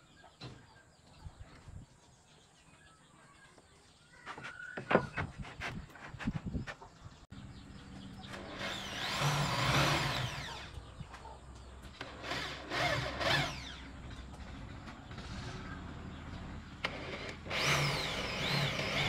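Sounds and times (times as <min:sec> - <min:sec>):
small motor whining: 0:08.2 - 0:10.8, 0:12.0 - 0:15.8, 0:16.8 - 0:19.0.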